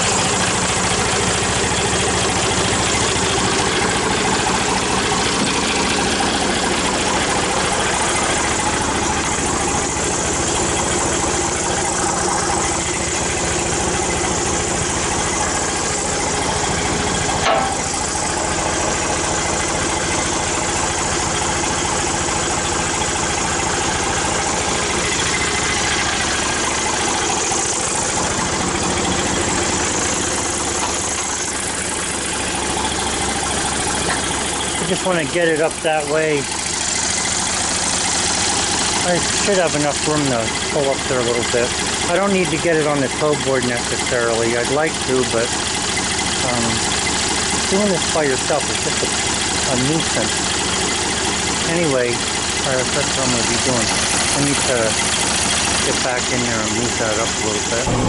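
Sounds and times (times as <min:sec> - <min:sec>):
engine idling: 0:00.0 - 0:58.0
sharp knock: 0:17.4 - 0:17.9.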